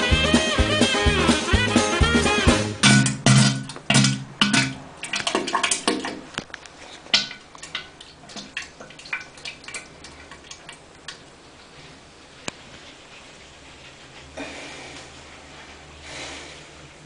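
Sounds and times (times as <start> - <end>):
music: 0.0 - 3.5.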